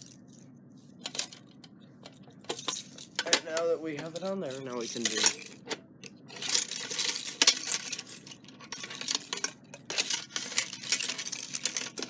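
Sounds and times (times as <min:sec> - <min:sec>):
keys jangling against metal panel: 0:04.2 - 0:12.0.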